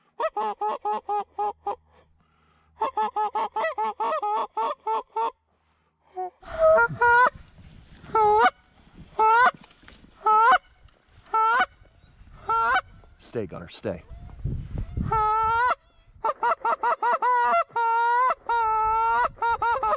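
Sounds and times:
geese honking: 0:09.2 - 0:09.6, 0:10.2 - 0:11.8, 0:12.4 - 0:12.9.

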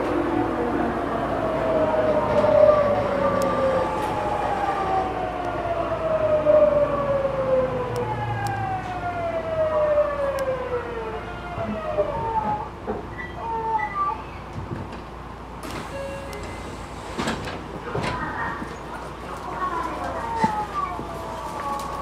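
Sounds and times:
train inverter and motors whining: 0:00.0 - 0:12.8, 0:15.6 - 0:17.8.

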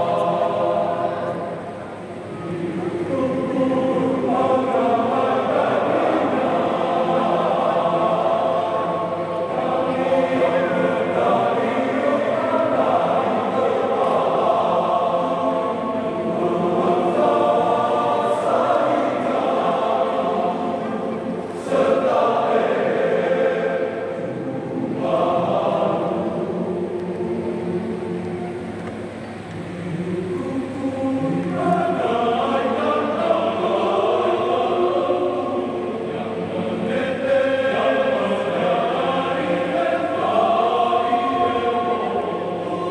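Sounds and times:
men's choir singing in harmony: 0:00.0 - 0:42.9.

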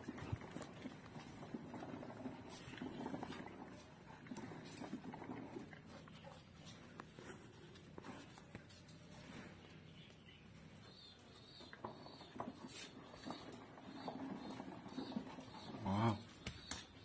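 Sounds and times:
toy truck rolling on concrete: 0:00.0 - 0:06.0, 0:11.4 - 0:16.2.

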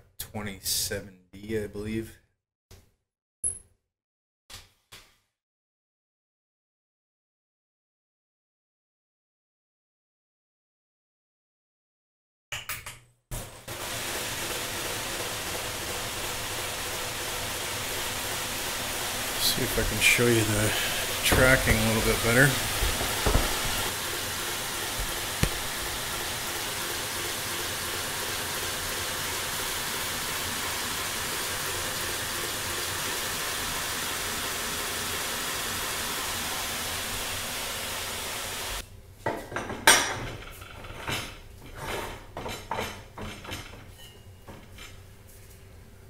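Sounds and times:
belt grinder running: 0:13.7 - 0:37.7
metallic knocks and clatter: 0:21.2 - 0:23.9.

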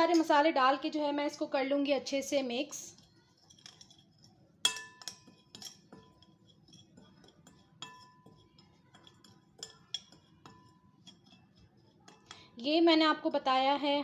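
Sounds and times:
metal spoon clinking against glass bowl: 0:02.9 - 0:12.6.

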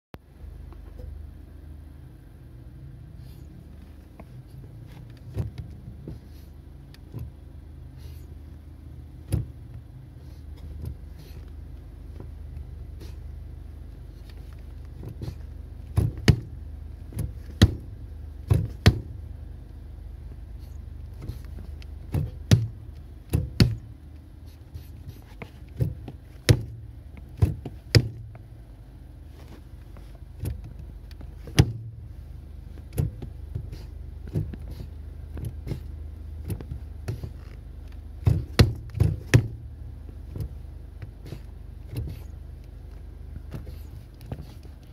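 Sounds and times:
car engine idling: 0:00.2 - 0:44.9
pedal knocks and clicks: 0:05.1 - 0:05.8, 0:09.2 - 0:09.8, 0:14.8 - 0:19.2, 0:21.1 - 0:23.9, 0:25.1 - 0:28.5, 0:29.5 - 0:32.0, 0:32.7 - 0:44.9.

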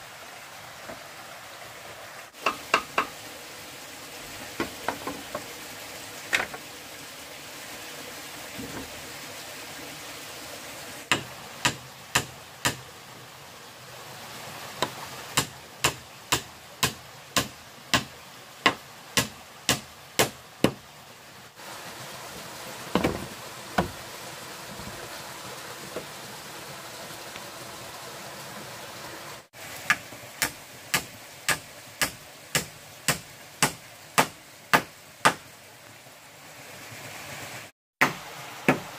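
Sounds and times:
small stream rushing: 0:00.0 - 0:38.9
tool knocking on bamboo: 0:02.4 - 0:03.2, 0:04.6 - 0:05.5, 0:11.1 - 0:12.8, 0:14.8 - 0:20.8, 0:22.9 - 0:24.0.

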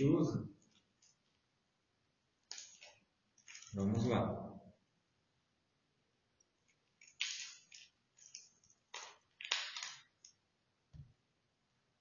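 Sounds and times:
plastic wrap crinkling: 0:06.9 - 0:10.3.

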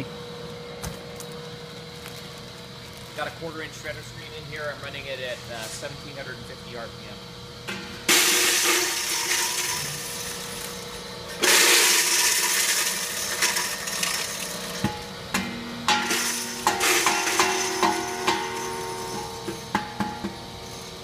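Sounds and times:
motor hum: 0:00.0 - 0:21.0
grinder grinding frozen fruit: 0:08.1 - 0:15.2, 0:16.0 - 0:19.7.

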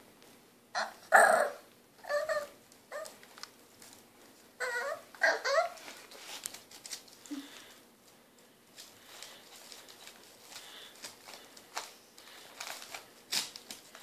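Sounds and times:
puppy whining and yipping: 0:00.8 - 0:03.2, 0:04.6 - 0:06.0.

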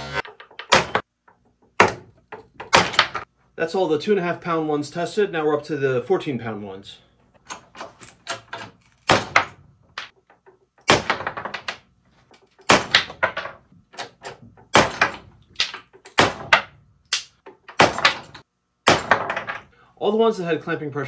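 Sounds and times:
wooden blocks cracking: 0:12.5 - 0:19.6.

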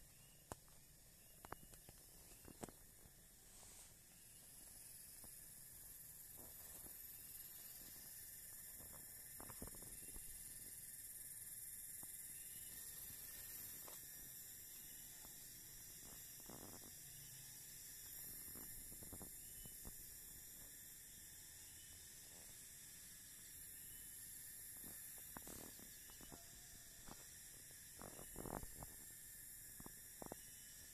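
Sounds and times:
faint hiss and hum: 0:00.0 - 0:30.9
faint ticks: 0:00.1 - 0:03.2, 0:23.9 - 0:30.9.

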